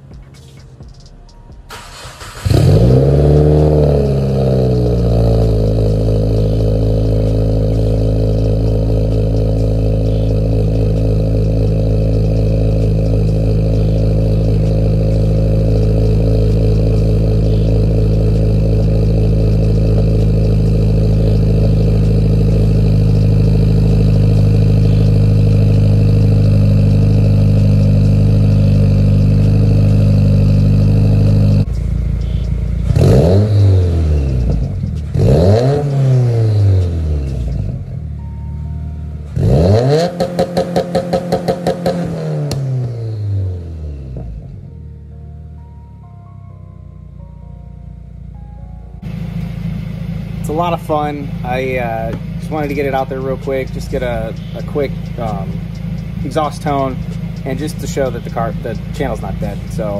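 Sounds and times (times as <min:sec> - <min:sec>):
car engine starting and idling: 0:00.0 - 0:59.9.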